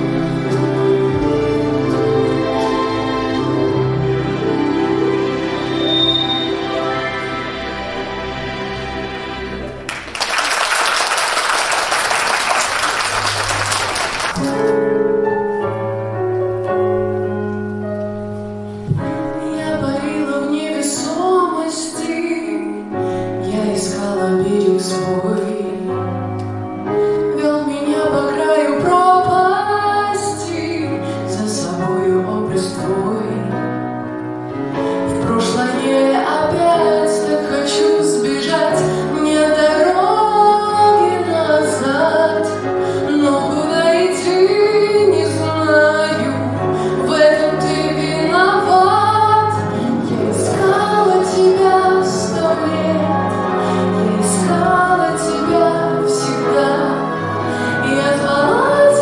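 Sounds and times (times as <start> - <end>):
slow instrumental accompaniment: 0.0 - 10.3, 11.6 - 21.4, 22.3 - 59.0
audience applause: 9.7 - 14.7
woman singing into a microphone: 19.4 - 33.8, 34.9 - 59.0.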